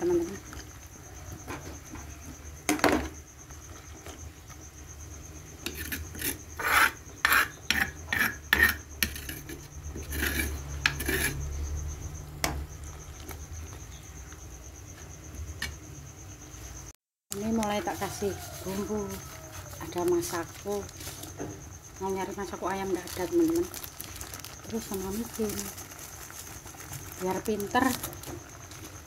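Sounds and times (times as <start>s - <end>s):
metal ladle scraping a pot: 5.6s - 11.6s.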